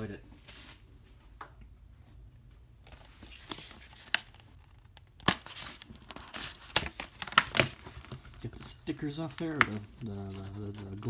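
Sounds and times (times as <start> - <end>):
packaging crinkling: 2.9 - 11.0
plastic packaging snapping: 3.9 - 8.2.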